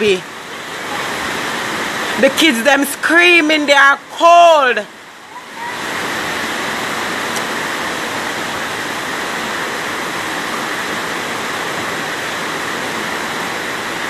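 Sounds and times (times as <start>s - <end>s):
floodwater rushing: 0.0s - 14.0s.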